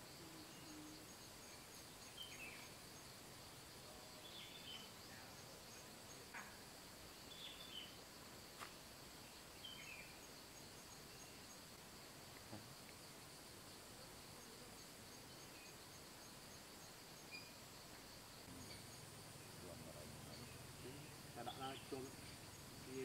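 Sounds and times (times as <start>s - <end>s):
insects droning: 0.0s - 23.0s
bird chirps: 0.4s - 2.8s, 4.2s - 6.6s, 7.3s - 8.0s, 9.3s - 11.6s, 17.2s - 17.7s, 18.4s - 23.0s.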